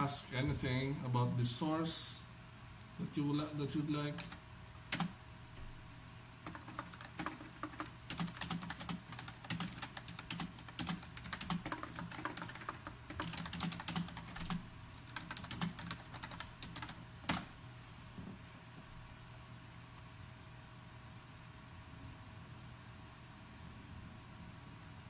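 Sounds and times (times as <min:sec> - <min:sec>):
typing on computer keyboard: 0:04.1 - 0:05.2, 0:06.4 - 0:17.5.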